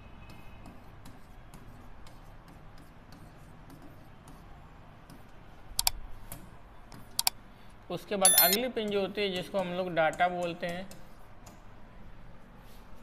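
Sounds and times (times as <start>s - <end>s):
marker squeak-click: 8.3s - 8.6s.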